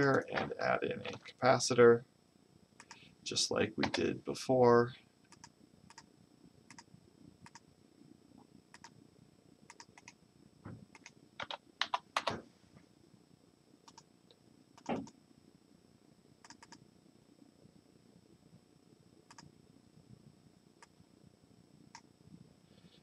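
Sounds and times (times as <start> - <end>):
computer mouse clicks: 2.8 - 3.1, 5.3 - 6.1, 6.7 - 7.6, 8.7 - 9.0, 9.7 - 10.2, 10.9 - 12.4, 13.8 - 14.0, 14.8 - 15.2, 16.4 - 16.8, 19.3 - 19.5
keyboard keystrokes: 11.0 - 12.4, 14.8 - 15.1.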